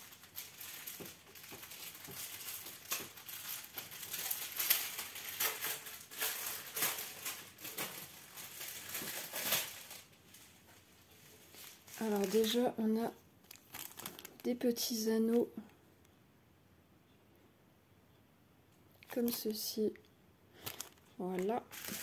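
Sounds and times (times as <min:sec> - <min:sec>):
plastic bags crinkling: 0:00.0 - 0:15.4, 0:19.0 - 0:19.7, 0:20.5 - 0:22.0.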